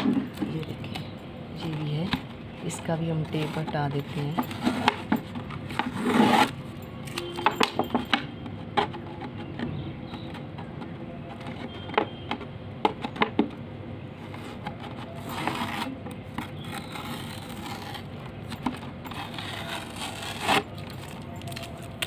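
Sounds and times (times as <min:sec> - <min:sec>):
tape ripping off: 0:15.3 - 0:22.0.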